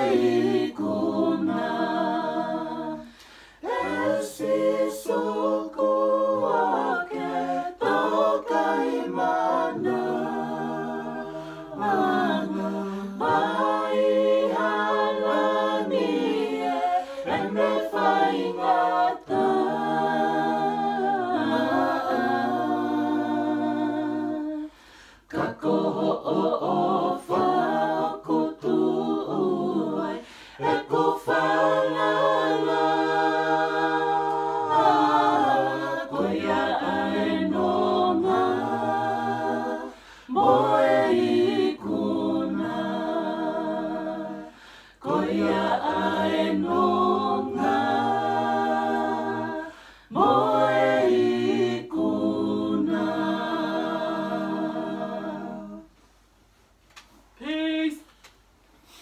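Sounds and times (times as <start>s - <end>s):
group singing a cappella: 0.0s - 56.2s.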